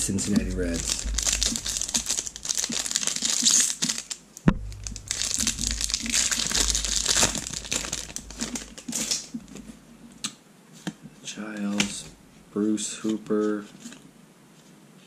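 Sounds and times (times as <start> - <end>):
foil wrapper crinkling and tearing: 0.2 - 9.6.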